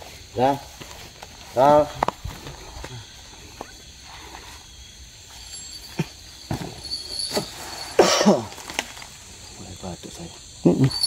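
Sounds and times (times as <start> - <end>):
rustling: 0.0 - 9.6
person coughing: 8.0 - 8.5.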